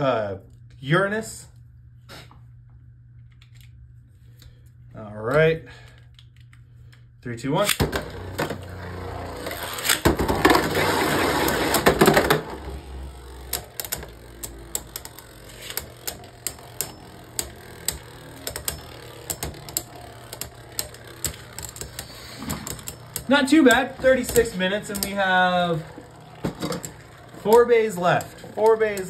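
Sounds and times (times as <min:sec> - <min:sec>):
spinning tops clashing: 0:08.0 - 0:29.0
tops clicking together: 0:09.5 - 0:29.0.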